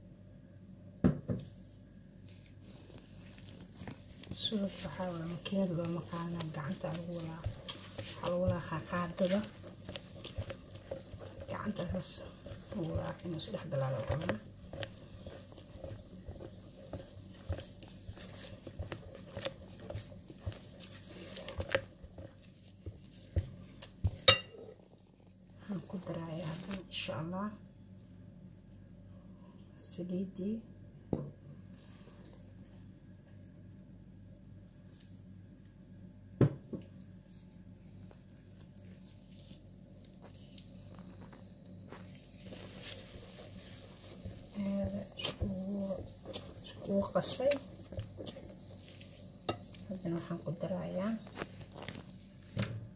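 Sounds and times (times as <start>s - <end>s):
low steady hum: 0.0s - 52.9s
spatula stirring batter: 1.7s - 27.4s, 37.0s - 52.9s
spatula tapping metal bowl: 24.1s - 24.7s, 49.4s - 49.8s.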